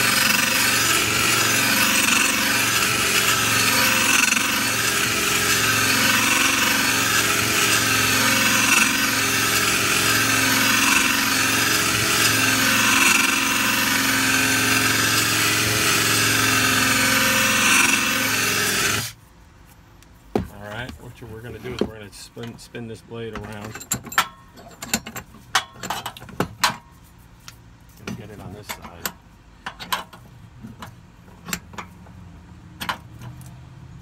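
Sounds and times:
drill running: 0.0s - 19.2s.

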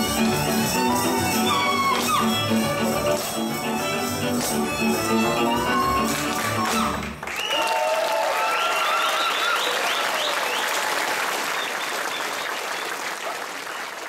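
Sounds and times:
audience applauding: 0.0s - 14.0s
people cheering and whooping: 6.0s - 11.1s.

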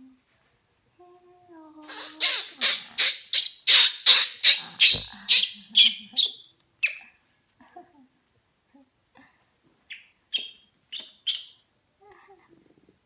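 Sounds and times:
baby monkey shrieking: 1.9s - 7.0s, 10.4s - 11.6s.

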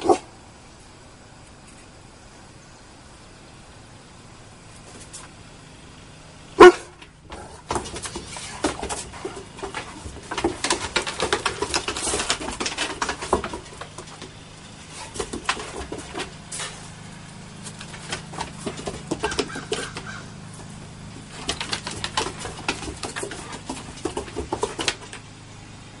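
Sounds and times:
dog barking: 0.0s - 0.3s, 6.6s - 7.0s
dogs play noises: 0.0s - 0.3s, 6.6s - 25.3s
claws scrabbling on wooden deck: 4.7s - 5.4s, 6.6s - 25.4s.

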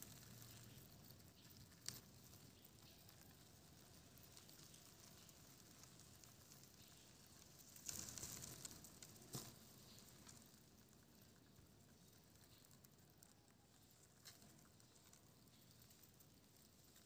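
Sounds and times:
crickets rustling over leaves: 0.0s - 13.1s.

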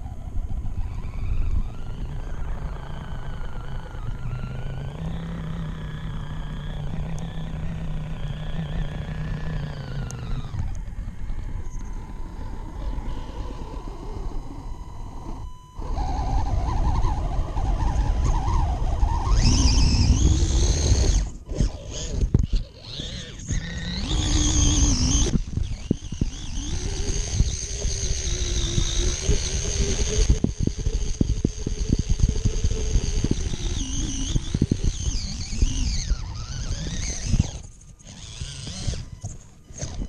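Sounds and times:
toy car motor whine: 0.0s - 40.0s.

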